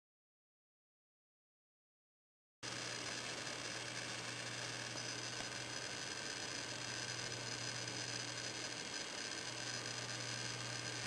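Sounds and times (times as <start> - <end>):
amplifier mains hum and hiss: 2.6 - 11.0.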